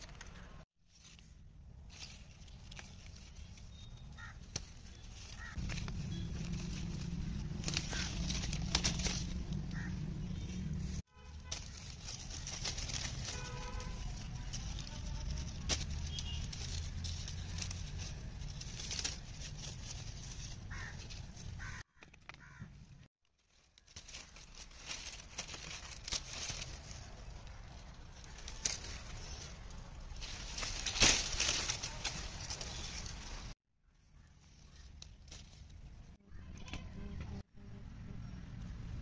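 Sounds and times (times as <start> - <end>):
leaves and twigs rustling: 0.0 - 37.3
bird calling: 3.7 - 6.7.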